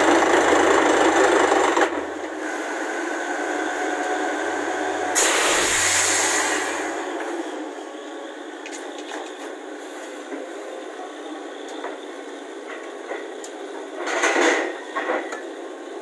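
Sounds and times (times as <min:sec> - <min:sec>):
drilling rig running: 0:00.0 - 0:07.9.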